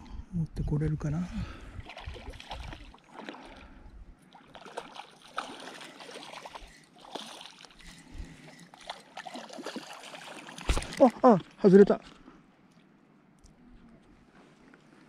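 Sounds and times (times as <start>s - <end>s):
fish splashing in shallow water: 1.6s - 11.7s.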